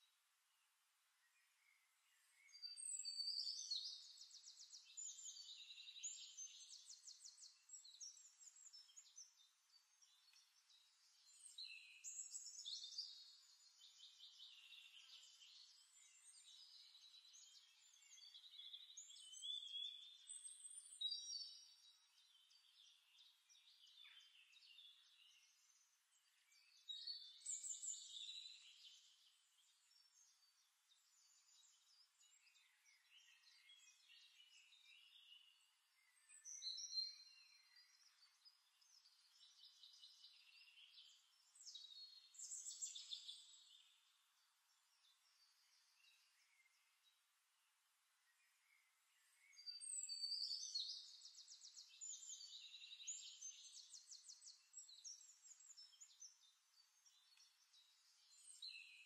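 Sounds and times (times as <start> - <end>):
birds chirping and trilling: 1.4 - 47.2, 48.4 - 59.0.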